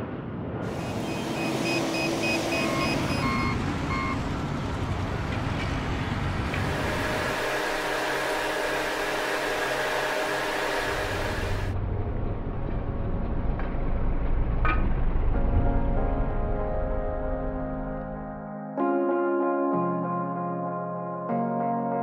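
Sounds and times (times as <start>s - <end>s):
steady machine hum: 0.6s - 13.6s
transporter engine running: 0.6s - 15.8s
rapid warning beeps: 0.7s - 4.2s.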